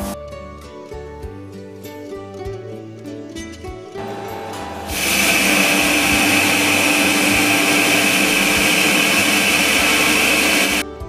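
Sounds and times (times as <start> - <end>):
coffee grinder running: 4.0 - 10.8.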